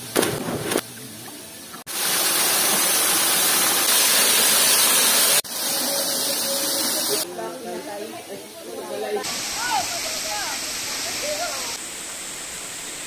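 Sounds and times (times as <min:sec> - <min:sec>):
water pouring over spillway: 0:01.8 - 0:07.2.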